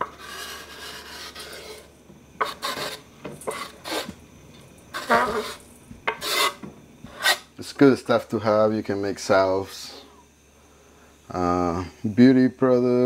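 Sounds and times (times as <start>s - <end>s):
knife scraping wooden board: 0.0s - 4.2s, 4.9s - 7.5s.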